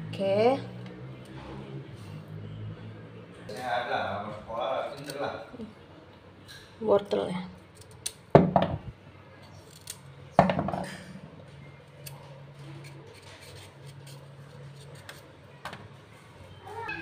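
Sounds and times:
peeler scraping carrot skin: 0:04.9 - 0:05.2, 0:12.0 - 0:15.3.

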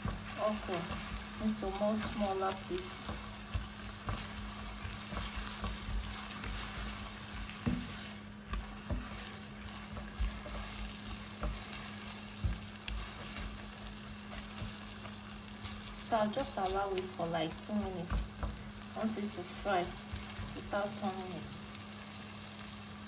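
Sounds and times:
spatula scraping a pan: 0:00.0 - 0:16.0
steady low hum: 0:00.0 - 0:22.7
okra and onions sizzling in oil: 0:00.0 - 0:23.0.

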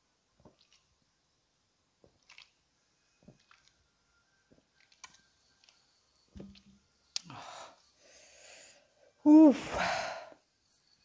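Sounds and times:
person gulping soda: 0:00.4 - 0:00.9, 0:02.0 - 0:02.6, 0:03.2 - 0:03.8.

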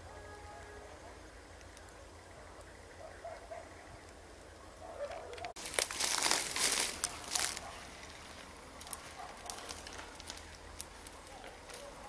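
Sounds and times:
rustling and crackling: 0:04.9 - 0:12.0.

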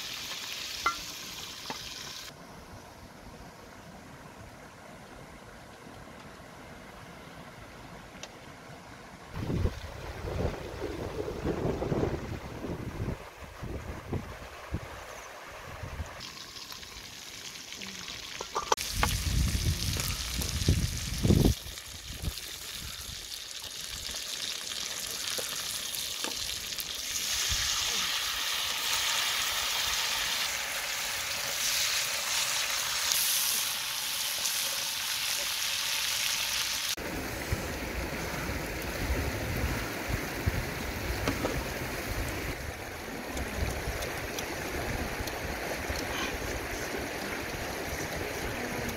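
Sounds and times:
food sizzling in a wok: 0:00.0 - 0:02.3, 0:16.2 - 0:37.0
wind on microphone: 0:09.4 - 0:15.0, 0:18.8 - 0:23.1, 0:37.4 - 0:48.9
river flowing: 0:36.9 - 0:48.9.

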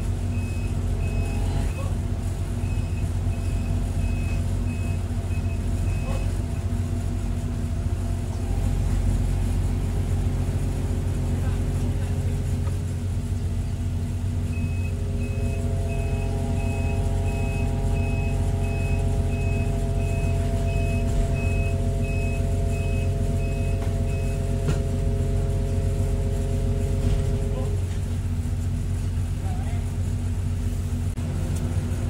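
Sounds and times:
excavator diesel engine running: 0:00.0 - 0:32.0
hydraulic whine: 0:00.0 - 0:32.0
high warning beep: 0:00.3 - 0:01.8, 0:02.6 - 0:06.4, 0:14.5 - 0:24.7.

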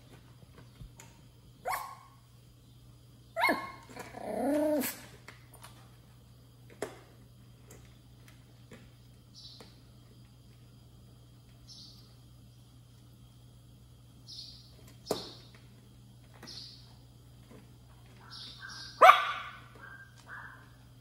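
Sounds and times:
puppy barking: 0:01.6 - 0:02.2, 0:03.4 - 0:03.9, 0:18.2 - 0:20.8
puppy whining: 0:03.4 - 0:05.1.

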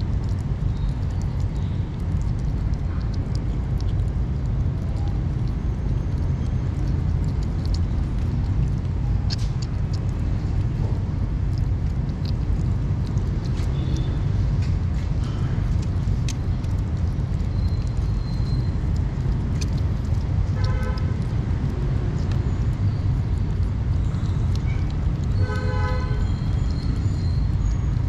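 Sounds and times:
kittens chewing and lapping food: 0:00.0 - 0:28.0
steady low rumble: 0:00.0 - 0:28.0.

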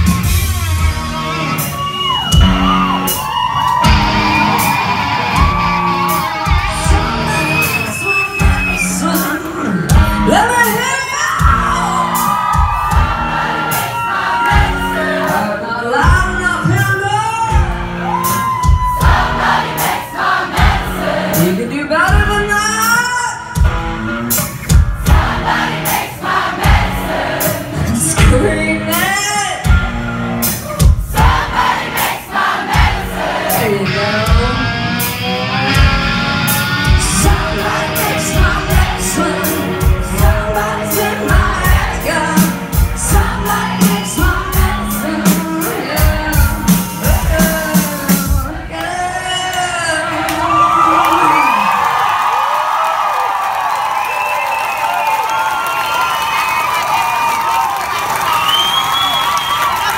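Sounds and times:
drums keeping a steady beat: 0:00.0 - 0:48.7
woman singing: 0:06.7 - 0:11.8, 0:14.6 - 0:17.5, 0:27.9 - 0:29.6, 0:37.0 - 0:50.2
electric guitars: 0:33.4 - 0:48.9.

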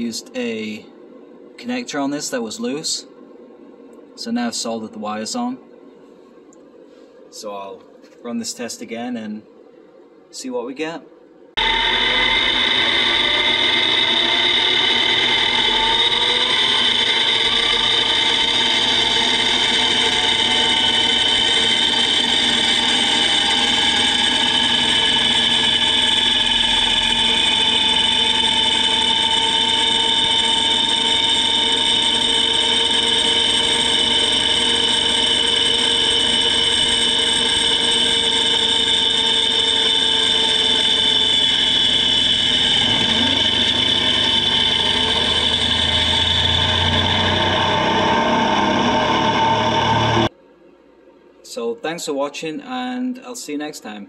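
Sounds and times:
gear train high-pitched whine: 0:11.6 - 0:50.3.

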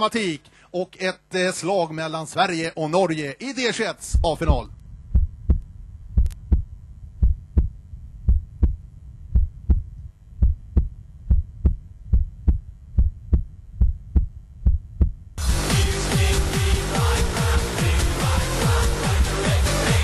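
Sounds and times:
heartbeat thumps: 0:04.1 - 0:15.5
electronic dance music: 0:15.4 - 0:20.0.

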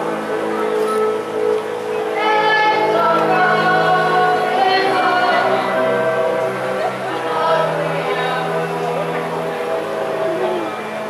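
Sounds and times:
group of voices singing: 0:02.1 - 0:10.9.

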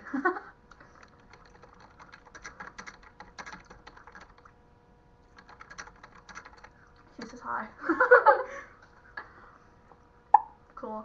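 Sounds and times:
computer keyboard typing: 0:00.7 - 0:04.5, 0:05.3 - 0:07.4.

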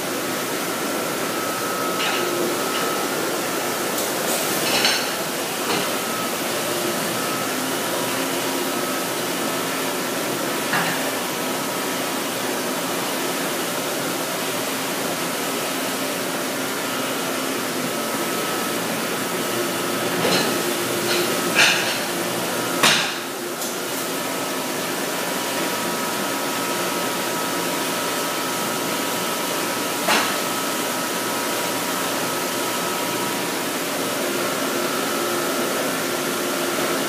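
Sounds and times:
dishwasher running: 0:00.0 - 0:37.0
dish racks and plates clanking: 0:01.9 - 0:03.2, 0:03.9 - 0:06.1, 0:20.0 - 0:23.3.

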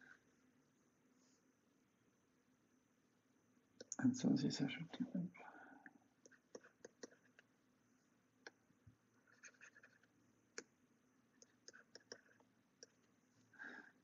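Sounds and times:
stylus tapping on tablet screen: 0:11.4 - 0:13.0.

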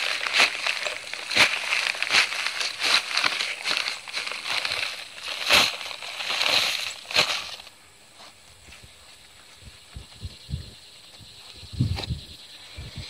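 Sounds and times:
paper bag crinkling and rustling: 0:00.0 - 0:07.7
sharp crackles: 0:00.0 - 0:07.7.

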